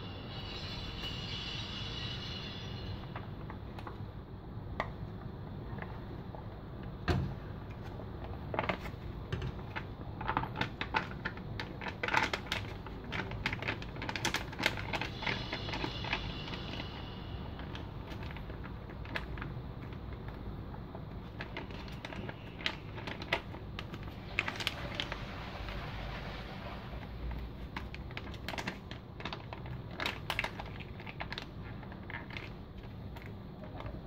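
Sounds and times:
steady low hum: 0.0 - 34.0
foil pouch crinkling and clicking: 9.6 - 16.7, 21.2 - 25.2, 27.7 - 34.0.

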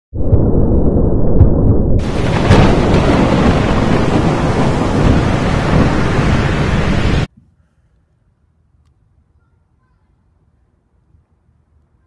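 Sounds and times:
storm rumble: 0.1 - 7.3
thunder crack: 0.1 - 7.3.

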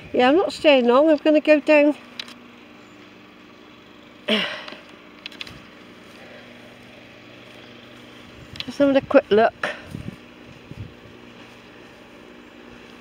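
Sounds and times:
faint clicks: 4.6 - 5.7.

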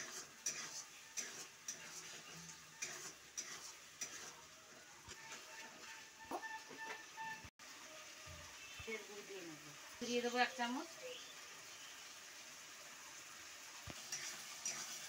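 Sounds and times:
spatula scraping a metal pan: 0.0 - 7.5
faint sizzle: 0.0 - 15.0.

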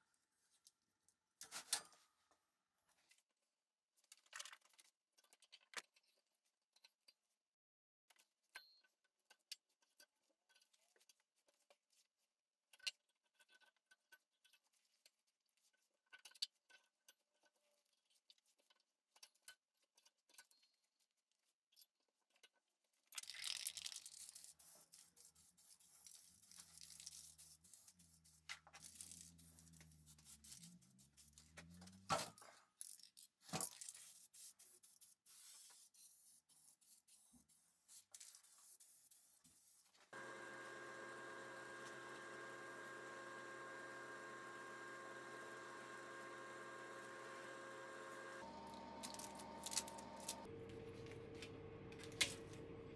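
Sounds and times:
masking tape pulled and torn: 23.4 - 32.0.

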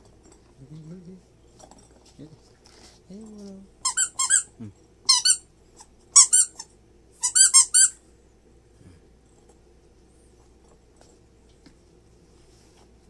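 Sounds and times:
rubber toy squeaking: 3.8 - 4.5, 5.1 - 5.4, 6.2 - 8.0.

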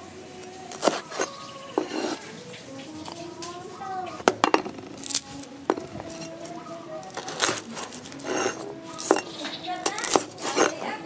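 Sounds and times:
cloves knocking on wood: 4.2 - 6.3, 7.1 - 10.9
garlic papery crackling rustles: 4.8 - 11.0.

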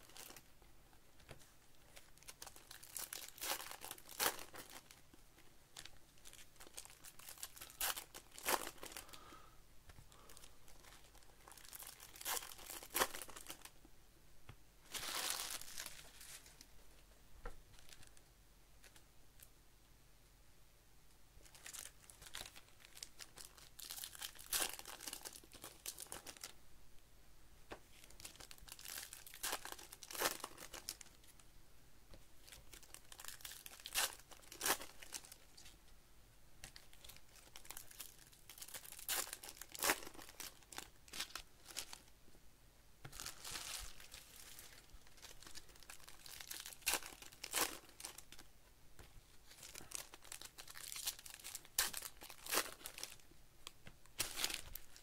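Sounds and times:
foil packs tearing and crinkling: 2.2 - 4.9, 37.0 - 41.9, 43.2 - 48.4, 49.5 - 53.1.

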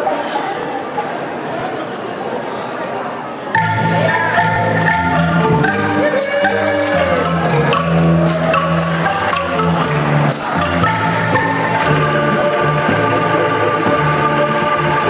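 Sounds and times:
angklung ensemble playing: 3.5 - 15.0
low bass notes: 3.6 - 15.0.

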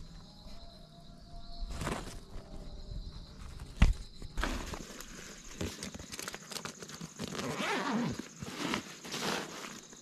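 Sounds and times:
backpack fabric rustling: 4.4 - 10.0.

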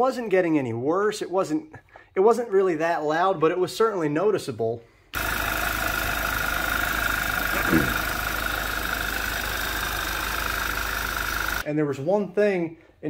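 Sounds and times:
car engine idling: 5.2 - 11.6.

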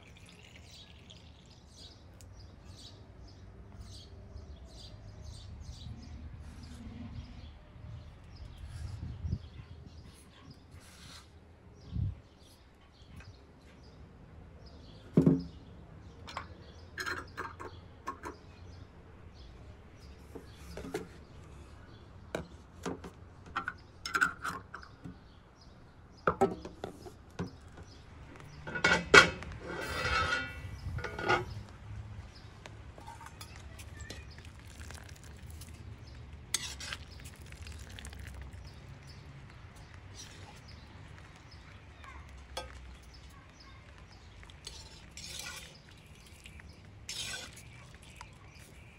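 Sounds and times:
glass jars and metal lids clinking: 16.3 - 18.3
jars scraping: 16.3 - 18.4, 28.4 - 31.6, 33.0 - 39.2, 44.3 - 48.9.

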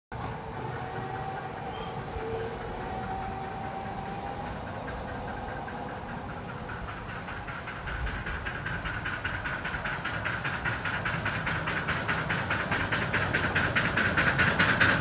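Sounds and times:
miniature train rumbling: 0.1 - 15.0.

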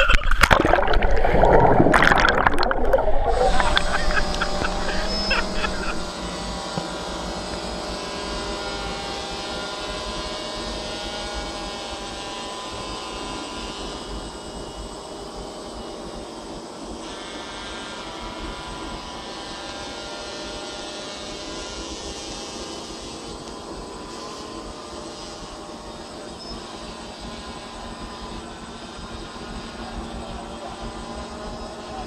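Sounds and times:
drone propellers whining: 0.0 - 11.9.

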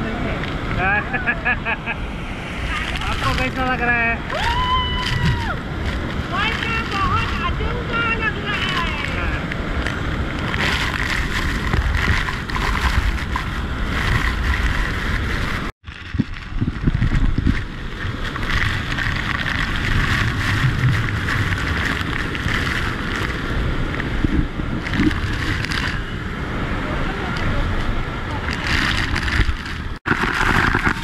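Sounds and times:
waterfall rushing: 0.0 - 13.0
wind buffeting microphone: 0.0 - 31.0.

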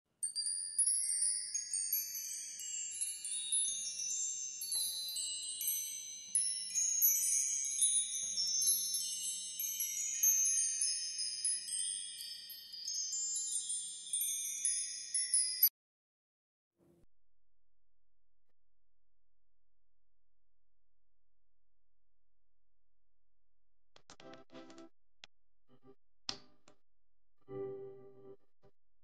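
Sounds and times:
shimmering chime tones: 0.2 - 15.7.

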